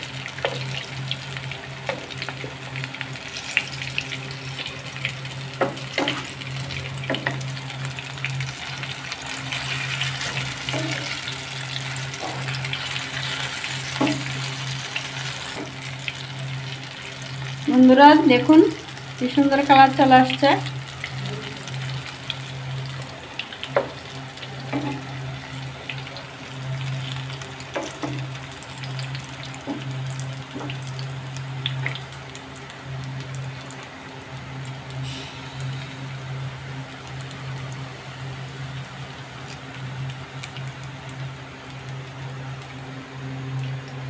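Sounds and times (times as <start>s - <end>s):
oil crackling and popping: 0.0s - 17.6s, 21.8s - 35.0s, 39.4s - 42.8s
deep-frying sizzle: 0.0s - 44.0s.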